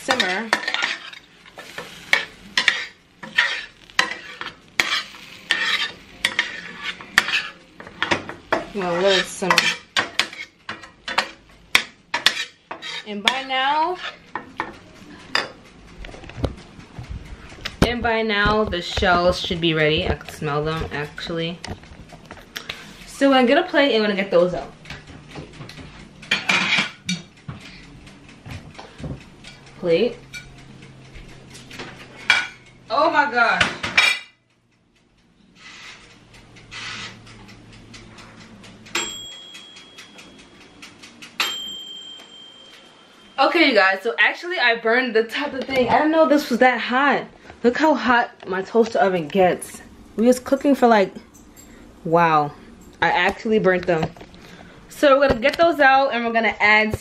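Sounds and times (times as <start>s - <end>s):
metal spatula scraping a skillet: 0.0s - 15.6s, 26.3s - 27.8s, 35.5s - 37.5s
dinner plates clattering: 17.4s - 22.9s, 24.8s - 27.9s
plates clinking: 26.3s - 27.3s.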